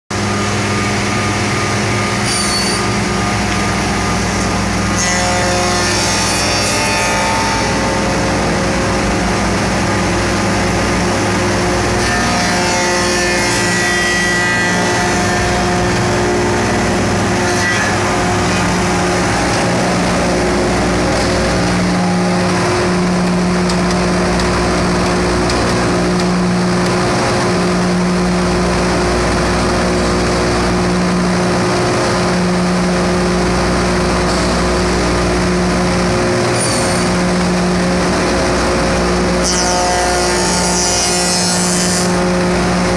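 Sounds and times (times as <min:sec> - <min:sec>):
machine motors droning: 0:00.2 - 0:42.9
pulsing low hum: 0:07.6 - 0:12.6, 0:14.4 - 0:36.3.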